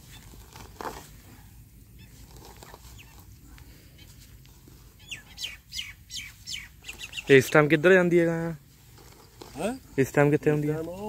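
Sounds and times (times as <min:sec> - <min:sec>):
auger twisting into wet soil: 0:00.0 - 0:05.3, 0:08.6 - 0:11.0
bird chirps: 0:01.9 - 0:03.3, 0:05.0 - 0:07.7
faint scraping: 0:06.9 - 0:11.0.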